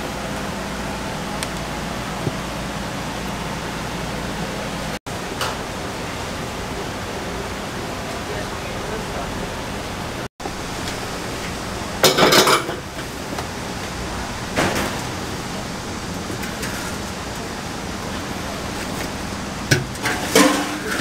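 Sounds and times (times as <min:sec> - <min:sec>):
noisy kitchen background: 0:00.0 - 0:21.0
plastic tub clattering on metal: 0:12.0 - 0:12.8, 0:19.7 - 0:21.0.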